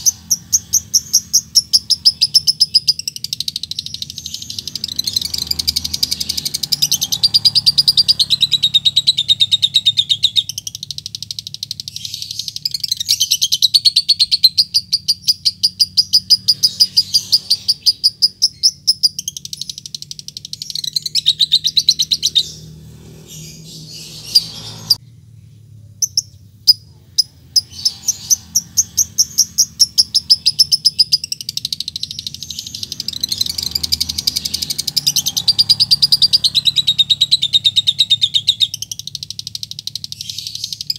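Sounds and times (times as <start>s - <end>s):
lovebird rapid chattering: 0.0s - 25.0s, 26.0s - 40.9s
sharp ticking chirps: 0.0s - 25.0s, 26.0s - 40.9s.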